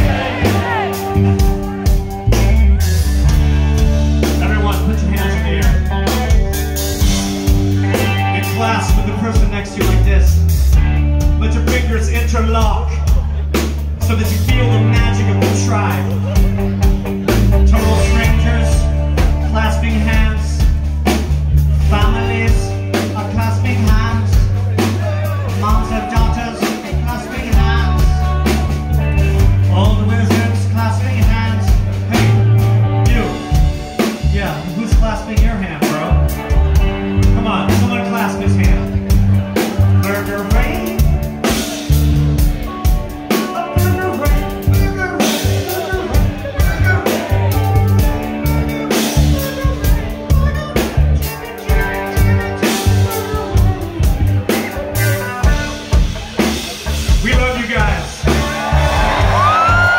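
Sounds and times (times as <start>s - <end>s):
person singing: 0.0s - 4.4s, 43.4s - 56.0s
bass guitar: 0.0s - 59.9s
drum kit steady beat: 0.0s - 59.9s
electric guitars: 0.0s - 59.9s
live rock band: 0.0s - 59.9s.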